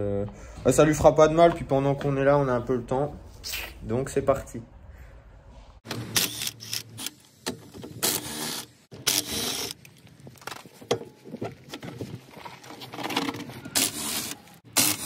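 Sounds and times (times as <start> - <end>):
loud tool bursts: 13.8 - 15.0.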